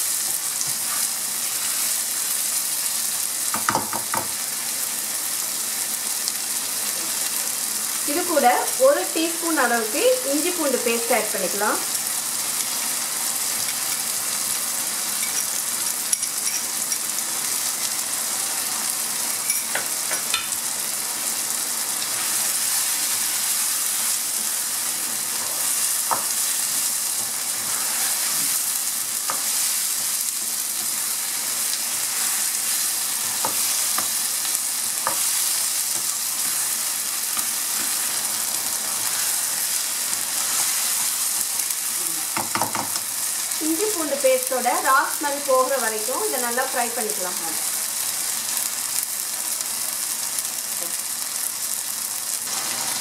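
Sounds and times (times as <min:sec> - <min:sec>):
vegetables sizzling in oil: 0:00.0 - 0:53.0
spatula scraping pan: 0:27.2 - 0:28.6.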